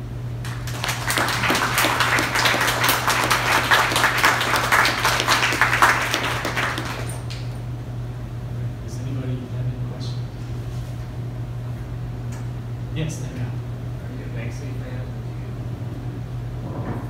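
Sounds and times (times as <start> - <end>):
steady low hum: 0.0 - 17.0
audience applauding: 0.4 - 7.6.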